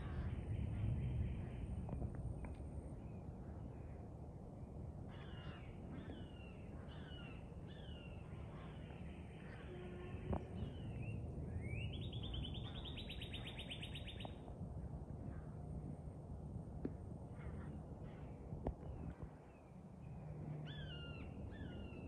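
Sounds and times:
crows cawing: 5.1s - 5.7s.

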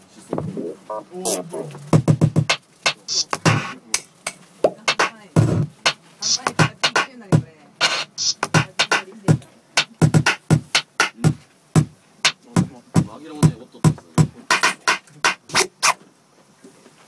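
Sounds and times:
percussive drum beat: 1.3s - 15.8s.

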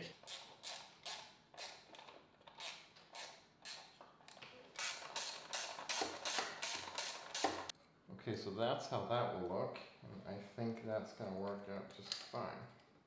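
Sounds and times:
hand ratchet clicking: 0.1s - 3.9s, 4.8s - 7.7s.

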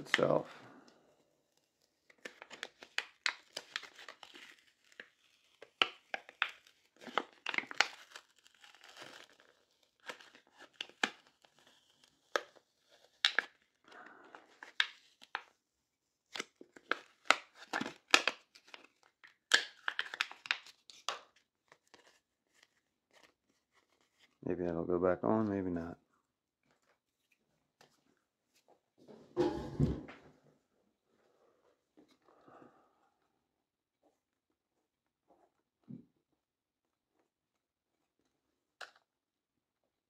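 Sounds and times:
adhesive crackling and tearing: 1.6s - 15.4s, 16.3s - 24.4s.

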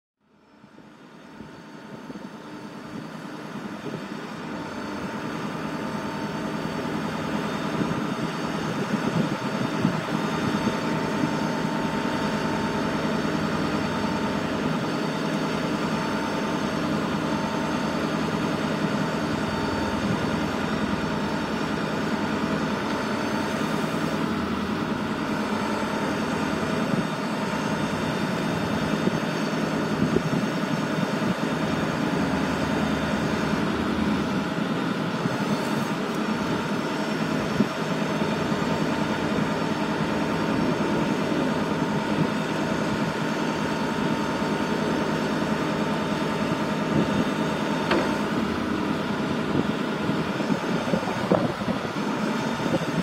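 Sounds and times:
faint hydraulic whine: 0.3s - 53.0s
truck engine drone: 0.3s - 53.0s.

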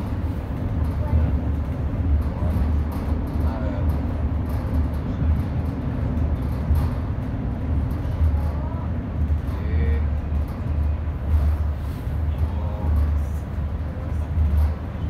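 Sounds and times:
faint indistinct voices: 0.0s - 15.0s
train low rumble: 0.0s - 15.0s.

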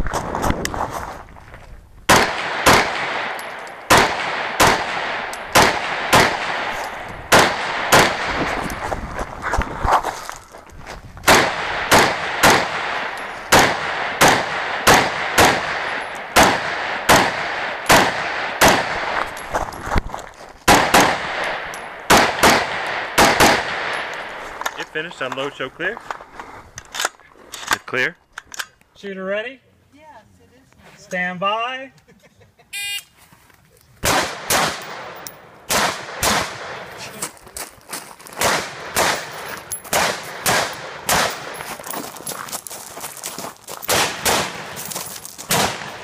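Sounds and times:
rifle shots with echo: 2.1s - 8.6s, 11.3s - 19.3s, 20.7s - 24.4s, 34.0s - 37.1s, 38.4s - 41.7s, 43.9s - 44.8s, 45.5s - 46.0s.

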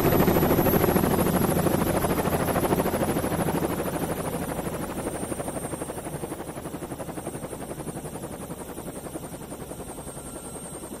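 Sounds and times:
helicopter rotor chop: 0.0s - 11.0s.

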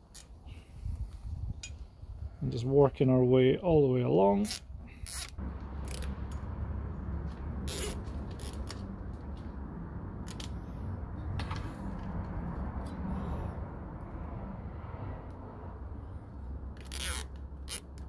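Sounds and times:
low background rumble: 4.6s - 18.0s
clicks and scrapes of cable: 7.7s - 9.5s, 10.2s - 10.6s.

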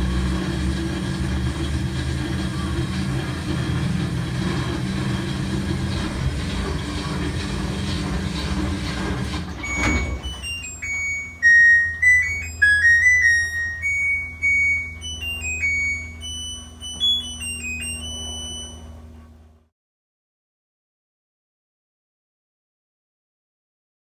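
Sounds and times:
washing machine spinning: 0.0s - 19.7s
washer chime melody: 1.3s - 19.4s.

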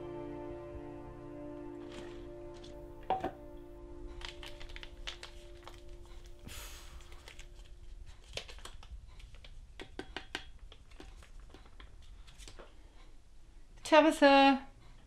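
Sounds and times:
foil pouch crinkling: 4.1s - 9.7s
clicks and taps over bowl: 9.4s - 11.9s.

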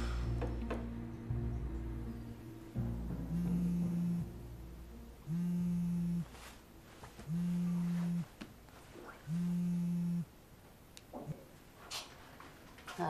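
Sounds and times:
mobile phone vibrating: 3.2s - 4.3s, 5.2s - 6.4s, 7.2s - 8.3s, 9.3s - 10.3s.

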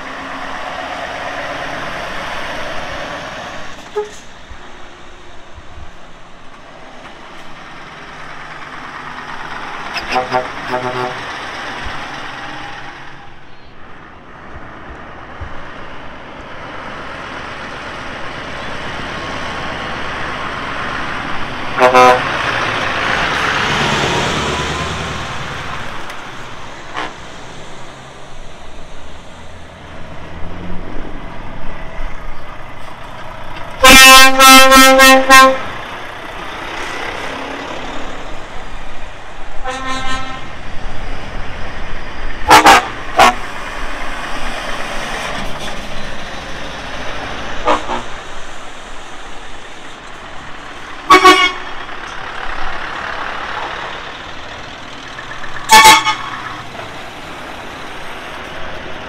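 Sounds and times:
lorries driving past: 0.0s - 59.0s
lorry horns tooting: 9.9s - 11.5s, 21.7s - 25.0s, 26.9s - 27.2s, 33.8s - 35.8s, 39.6s - 40.6s, 42.5s - 43.5s, 47.6s - 48.3s, 51.0s - 52.0s, 55.5s - 56.8s.

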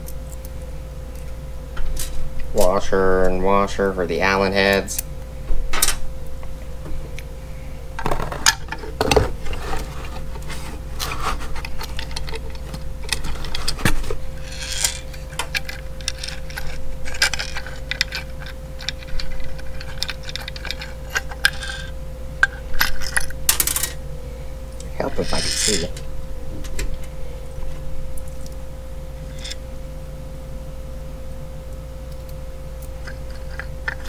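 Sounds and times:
faint steady hum: 0.0s - 34.0s
metal hardware clinking: 14.4s - 24.0s, 25.1s - 26.0s.

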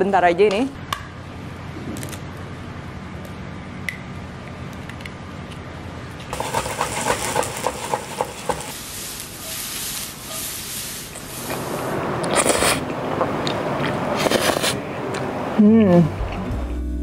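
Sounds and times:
food sizzling in frying pan: 6.3s - 12.0s.

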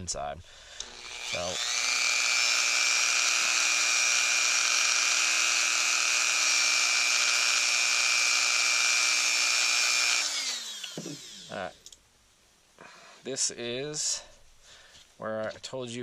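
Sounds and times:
rotary tool whining: 0.8s - 11.8s.

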